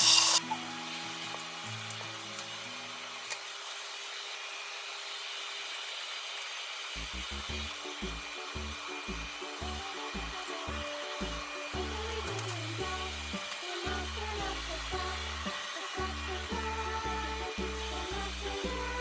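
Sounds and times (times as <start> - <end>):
background music bass line: 7.1 - 19.0.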